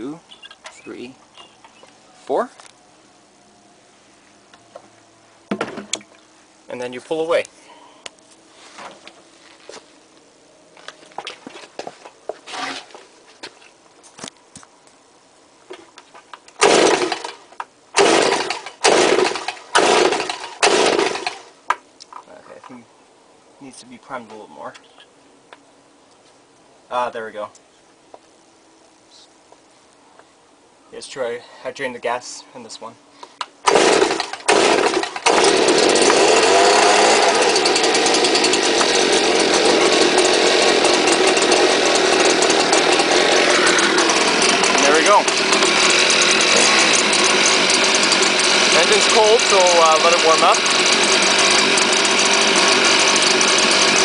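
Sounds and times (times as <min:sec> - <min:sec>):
leaf blower recoil starter pulls: 0:12.5 - 0:13.0, 0:16.5 - 0:17.4, 0:18.0 - 0:21.5, 0:33.7 - 0:54.0
engine turning over: 0:16.6 - 0:21.5, 0:33.6 - 0:54.0.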